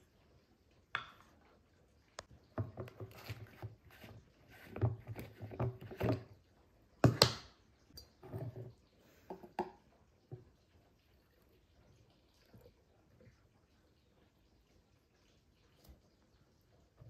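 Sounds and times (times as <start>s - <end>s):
plastic twisting and scraping: 2.6s - 6.4s.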